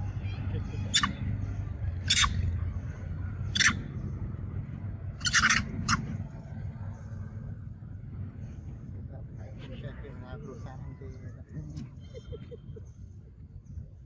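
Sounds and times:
young monkey squealing: 0.6s - 1.3s, 2.0s - 2.6s, 3.5s - 3.9s, 5.2s - 6.2s.

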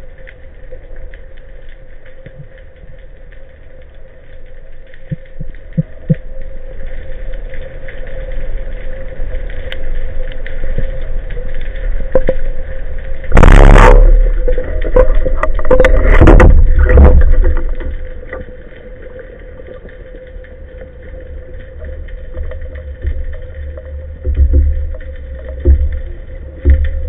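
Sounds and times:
low underwater hum: 0.0s - 27.0s
water rushing and knocking: 13.3s - 18.5s, 22.2s - 27.0s.

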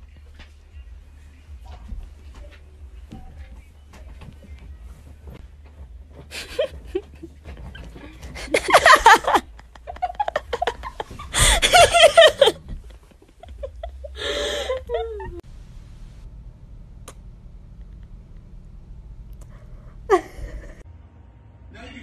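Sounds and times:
person laughing hard: 6.3s - 15.4s, 20.1s - 20.8s.

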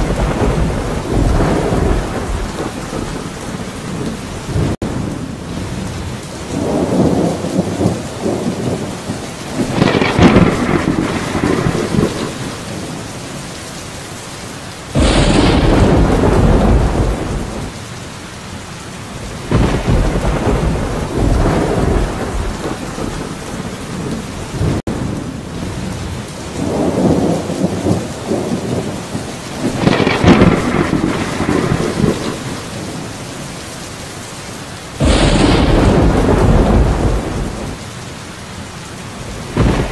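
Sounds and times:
close thunderclap: 0.0s - 5.1s, 6.5s - 13.0s, 14.9s - 17.8s, 19.2s - 25.1s, 26.6s - 33.1s, 35.0s - 37.8s, 39.2s - 39.9s
rolling thunder: 0.0s - 13.1s, 14.9s - 17.8s, 19.2s - 26.0s, 26.6s - 33.4s, 35.0s - 37.9s, 39.2s - 39.9s
steady rain: 0.0s - 39.9s.

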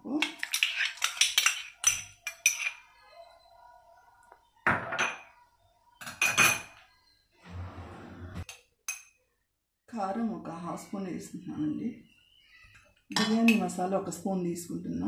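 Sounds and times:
kitchenware clinking on metal pot: 0.2s - 2.8s, 6.0s - 6.8s.

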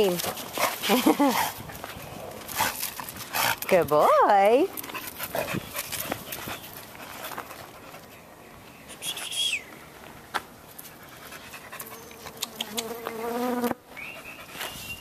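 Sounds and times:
dogs panting and sniffing: 0.0s - 8.7s, 10.6s - 12.6s, 14.0s - 15.0s.

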